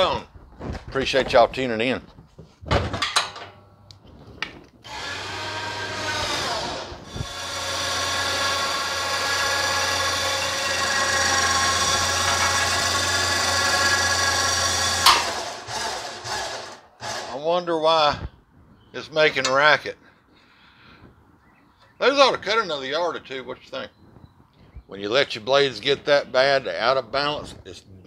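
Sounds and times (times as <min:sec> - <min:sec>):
riding mower running: 0:04.9 - 0:17.3
high whine of deck spindles: 0:04.9 - 0:17.4.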